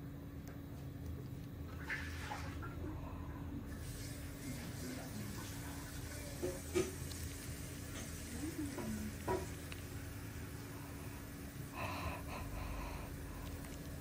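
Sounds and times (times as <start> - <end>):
crackling hiss: 3.7 - 14.0.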